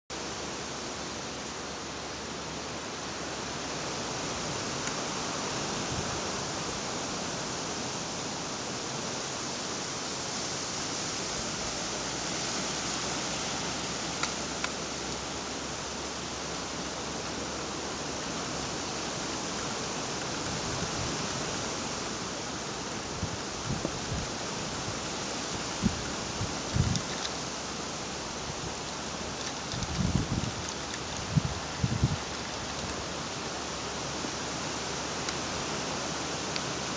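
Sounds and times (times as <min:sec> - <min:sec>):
wind noise: 0:19.3 - 0:22.3, 0:23.0 - 0:34.8.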